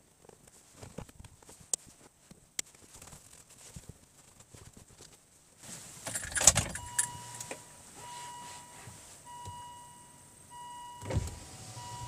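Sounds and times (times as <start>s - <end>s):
electronic warning beep: 6.8s - 11.2s, 11.8s - 12.0s.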